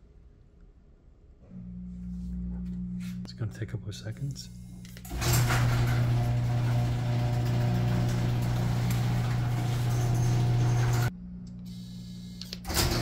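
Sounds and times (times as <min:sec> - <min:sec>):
garage door opener motor hum: 0:04.6 - 0:11.1, 0:11.7 - 0:13.0.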